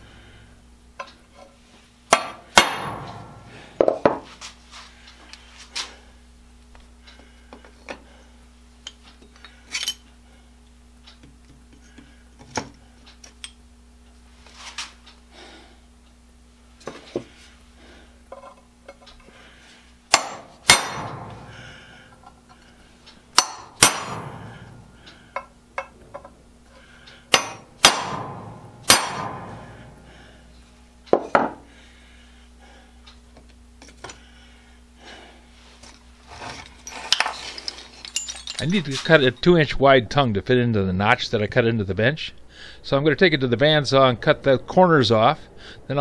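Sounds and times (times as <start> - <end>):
hammer striking a center punch: 2.1 - 4.2, 20.1 - 21.9, 23.3 - 25.9, 27.3 - 30.0.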